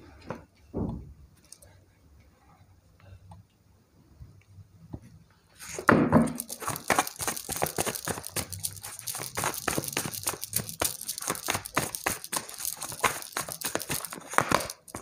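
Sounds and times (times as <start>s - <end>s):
cards being shuffled: 5.6s - 15.0s.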